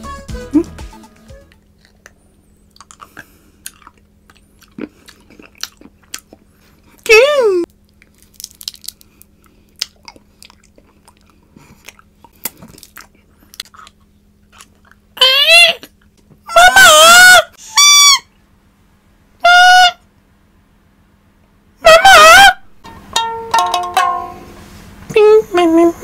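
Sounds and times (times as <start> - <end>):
chewing: 1.5 - 7.0, 7.7 - 15.2.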